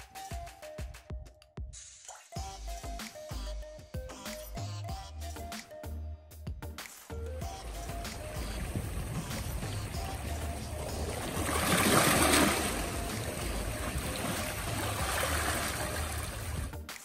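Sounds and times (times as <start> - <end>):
water washing and trickling: 7.4 - 16.8.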